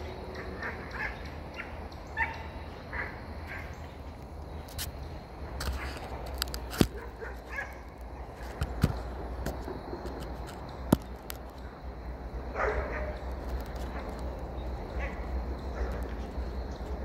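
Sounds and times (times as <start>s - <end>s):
dogs barking and yelping: 0.0s - 4.0s, 6.8s - 8.6s, 12.5s - 17.0s
distant dogs fighting: 0.0s - 4.8s, 5.4s - 17.0s.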